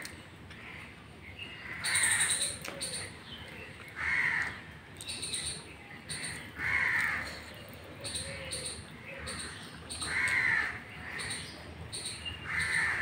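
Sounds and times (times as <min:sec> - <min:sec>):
crow cawing: 0:01.6 - 0:02.4, 0:04.0 - 0:04.6, 0:06.6 - 0:07.4, 0:09.1 - 0:11.4, 0:12.4 - 0:13.0.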